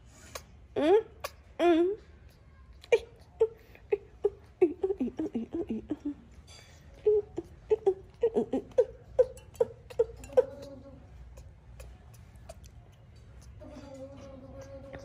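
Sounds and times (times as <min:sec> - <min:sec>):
baby monkey whimpering: 0:07.1 - 0:12.8, 0:13.4 - 0:15.0.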